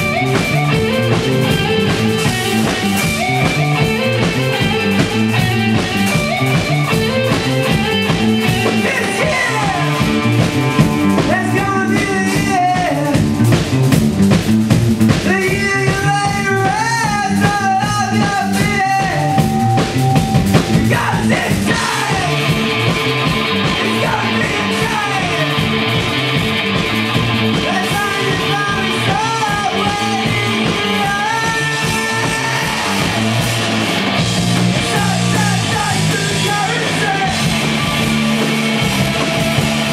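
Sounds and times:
live rock band playing: 0.0 - 39.9
man singing into microphone: 8.7 - 10.1, 11.2 - 13.2, 15.2 - 19.5, 20.8 - 22.6, 23.8 - 25.6, 27.6 - 32.9, 34.9 - 37.5.

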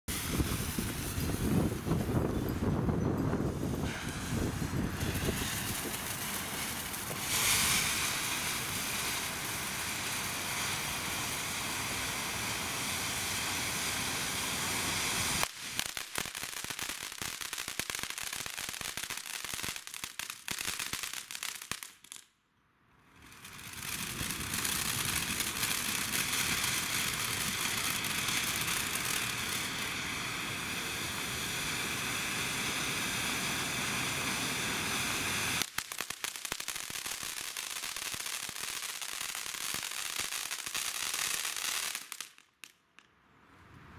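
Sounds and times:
firework fountain hissing and crackling: 0.1 - 22.3, 23.0 - 42.8.

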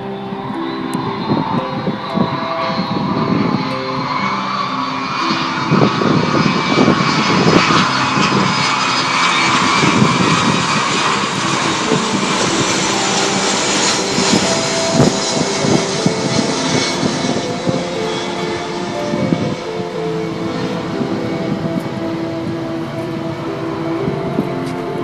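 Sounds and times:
jet aircraft engines roaring: 0.0 - 25.0.

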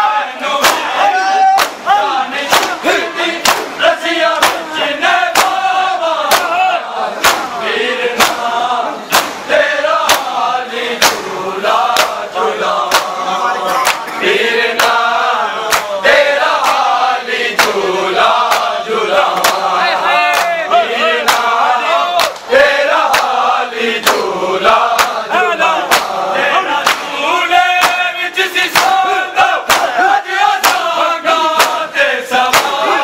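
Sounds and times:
men chanting in unison: 0.0 - 33.0
hands slapping chests: 0.6 - 0.9, 1.5 - 2.8, 3.4 - 4.7, 5.3 - 6.6, 7.2 - 7.6, 8.2 - 10.4, 11.0 - 11.3, 11.9 - 13.2, 13.8 - 14.2, 14.8 - 15.1, 15.7 - 17.8, 18.4 - 20.6, 21.2 - 21.6, 22.2 - 23.4, 24.0 - 24.3, 24.9 - 25.2, 25.8 - 26.2, 26.8 - 27.2, 27.8 - 28.0, 28.7 - 29.0, 29.6 - 30.0, 30.6 - 30.9, 31.5 - 31.9, 32.5 - 32.8.

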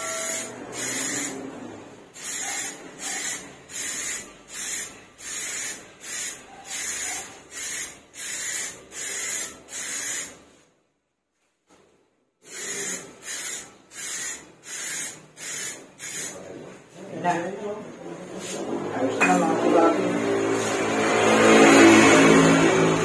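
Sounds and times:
aerosol spray can hissing: 2.2 - 10.4, 12.4 - 16.4.

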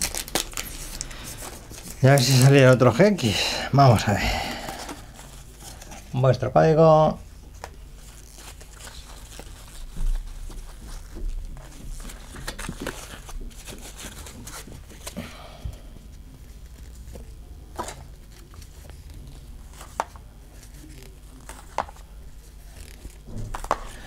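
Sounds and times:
cards sliding against each other: 22.7 - 24.0.

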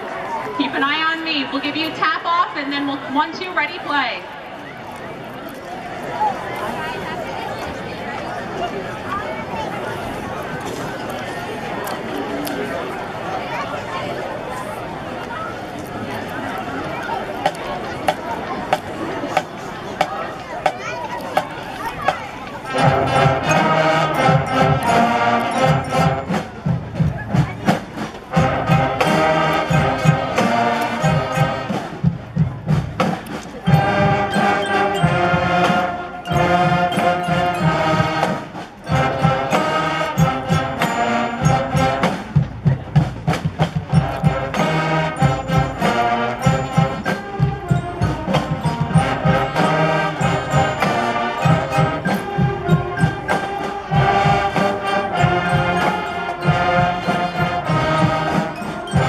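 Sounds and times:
school band playing: 16.8 - 59.0
percussion with mallet instruments: 17.4 - 59.0.

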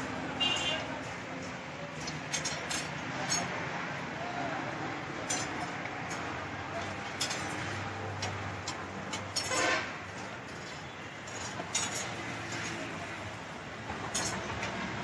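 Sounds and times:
traffic noise: 0.0 - 15.0
metal clinks: 2.0 - 3.6, 5.2 - 13.1.

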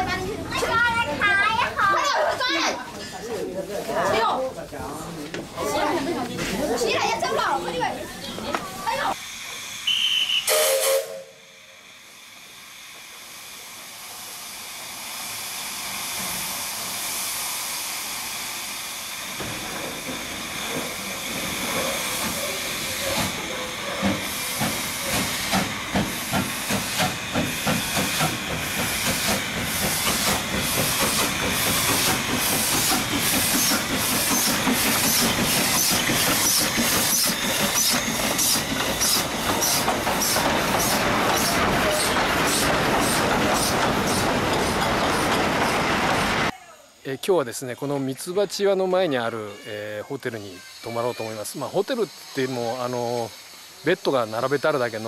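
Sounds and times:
steam hissing: 5.0 - 47.2, 48.3 - 55.0
steam locomotive chuffing: 8.7 - 46.5, 50.4 - 55.0
steam whistle blast: 9.7 - 11.7.

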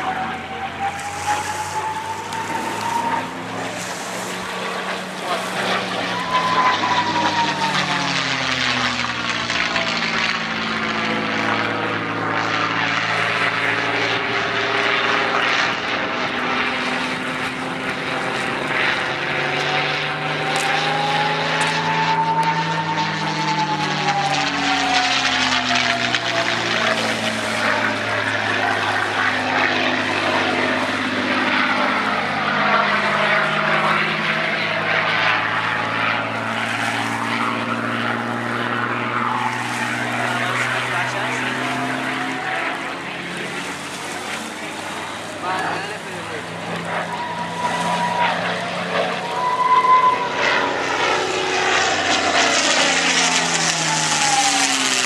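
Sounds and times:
aircraft engine and propeller: 0.0 - 55.0
thin whistling tone: 0.6 - 3.4, 6.0 - 7.7, 49.2 - 50.4.

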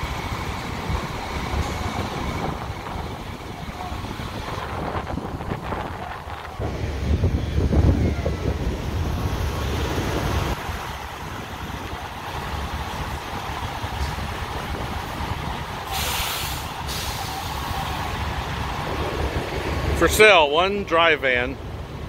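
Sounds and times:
wind gusting on microphone: 0.0 - 20.4
fire and trucks rumbling: 0.0 - 22.0
air brake hiss: 15.9 - 17.9.

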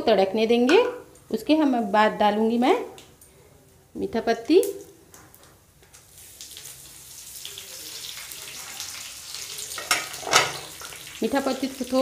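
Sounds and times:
spices sizzling in hot oil: 4.4 - 12.0.

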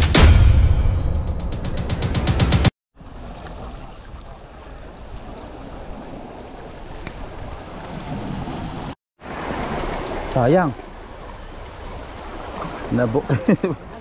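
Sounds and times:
waves washing against rocks: 5.0 - 13.3.

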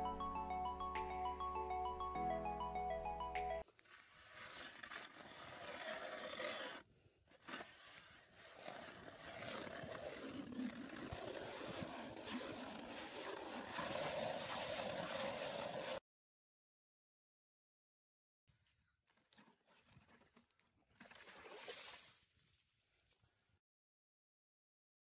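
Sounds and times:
ice auger grinding scrape: 3.7 - 16.0.

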